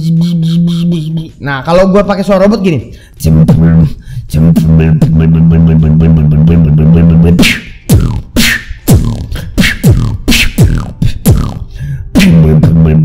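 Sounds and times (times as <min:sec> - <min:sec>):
beatboxer buzzing robot voice: 0:00.0 - 0:01.4, 0:03.2 - 0:13.0
beatbox kicks with snare cracks: 0:04.5 - 0:13.0.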